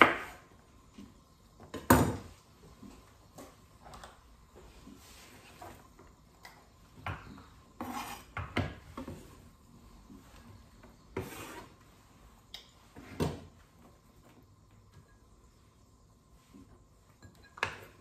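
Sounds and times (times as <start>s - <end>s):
glass bowl and utensils clinking: 17.1s - 18.0s.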